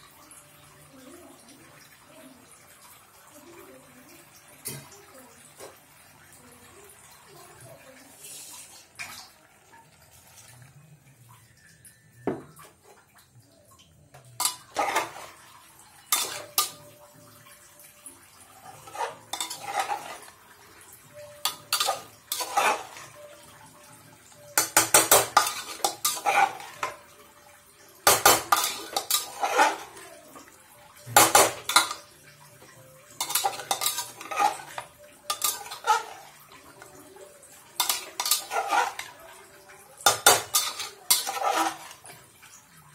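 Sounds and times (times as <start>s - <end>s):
metal ladle scraping metal pot: 14.4s - 15.4s, 16.1s - 16.8s, 18.6s - 20.3s, 21.5s - 23.2s, 24.6s - 27.0s, 28.0s - 30.0s, 33.2s - 36.3s, 37.8s - 39.2s, 40.1s - 42.0s.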